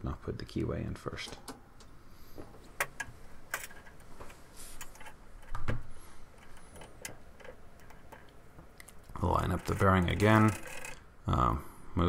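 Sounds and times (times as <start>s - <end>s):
metal parts clicking and knocking: 2.8s - 4.1s, 6.4s - 11.0s.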